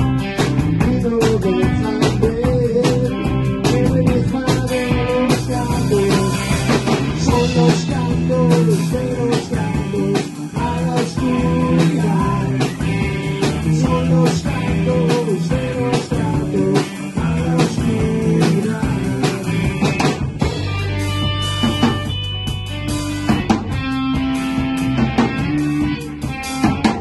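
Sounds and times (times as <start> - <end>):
rock band playing live: 0.0 - 27.0
drum strikes: 10.6 - 27.0.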